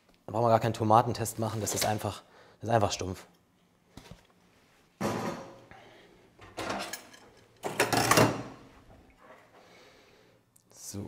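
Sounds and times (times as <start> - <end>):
kitchen items clattering on metal counter: 5.0 - 5.7, 6.4 - 8.7.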